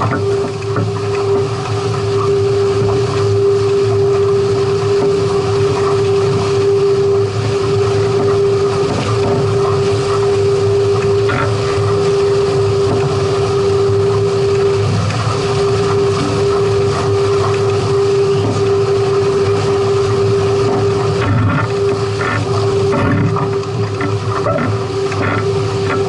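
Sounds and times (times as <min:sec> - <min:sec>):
constant droning hum: 0:00.0 - 0:26.0
wind and water rushing: 0:00.0 - 0:26.0.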